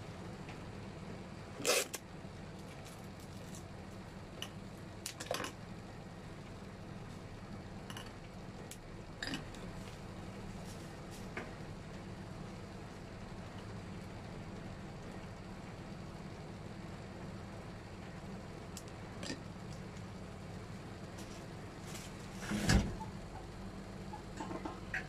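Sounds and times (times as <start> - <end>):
steady low hum: 0.0 - 25.0
clicks and rustles of handling flowers: 2.5 - 4.1.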